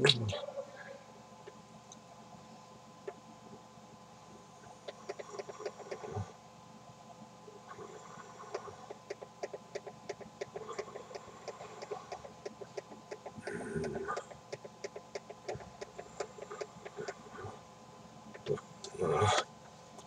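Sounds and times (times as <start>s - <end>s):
faint steady hum: 0.0s - 20.0s
fast faint ticks: 8.4s - 17.2s.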